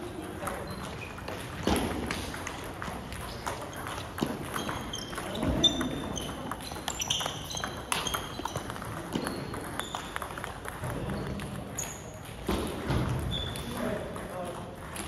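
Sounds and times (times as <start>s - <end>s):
table tennis balls clicking: 0.0s - 15.0s
short high squeaks: 3.3s - 8.7s.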